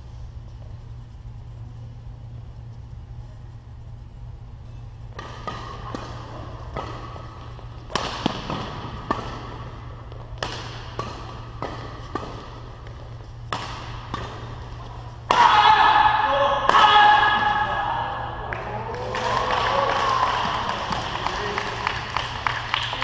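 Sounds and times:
low steady hum: 0.0s - 23.0s
rackets hitting shuttlecock: 5.1s - 18.7s.

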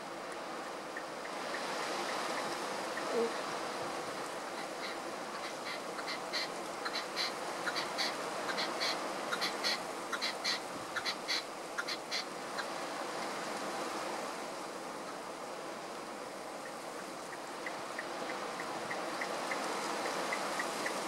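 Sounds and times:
steady outdoor hiss: 0.0s - 21.0s
partridge chirping: 4.1s - 12.7s.

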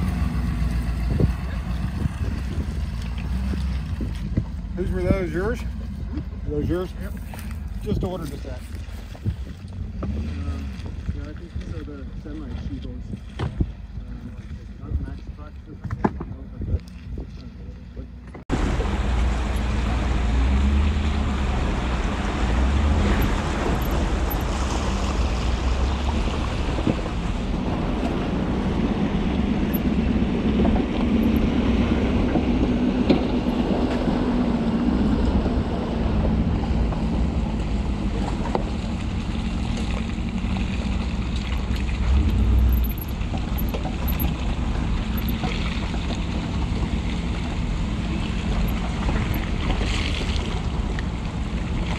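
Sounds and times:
water sloshing around tyres: 0.0s - 51.9s
wind on microphone: 0.8s - 5.2s, 8.8s - 9.9s.

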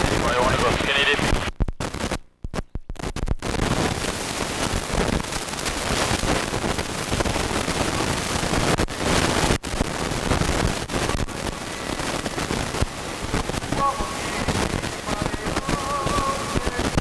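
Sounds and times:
helicopter cabin noise: 0.0s - 1.4s.

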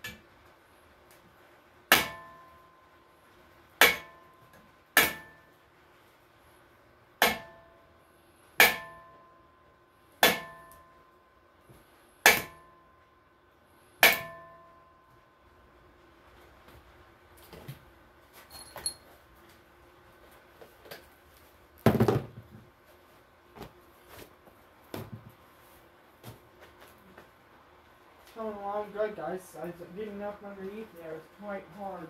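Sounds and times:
hammer striking metal: 1.9s - 2.7s, 3.8s - 5.5s, 7.2s - 7.8s, 8.6s - 9.3s, 10.2s - 11.0s, 12.2s - 12.9s, 14.0s - 14.9s.

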